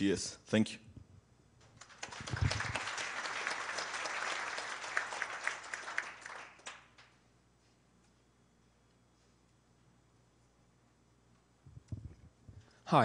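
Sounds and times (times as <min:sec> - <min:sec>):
audience applauding: 0:01.8 - 0:07.1.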